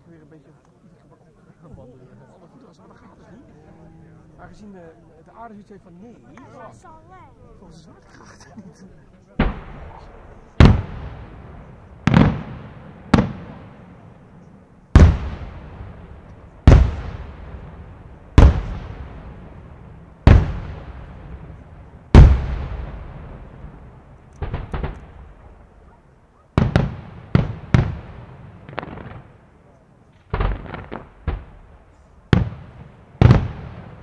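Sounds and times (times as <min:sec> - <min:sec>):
firework shells bursting: 0:24.2 - 0:25.4.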